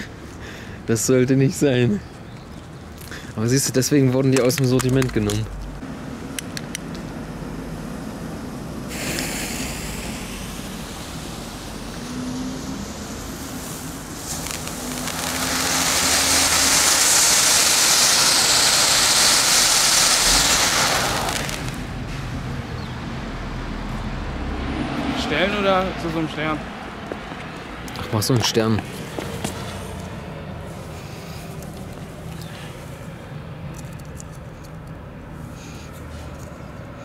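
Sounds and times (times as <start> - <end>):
firework clicks: 4.1 - 7.2, 8.9 - 22.2, 31.4 - 32.6
hiss of firework sparks: 7.9 - 22.3.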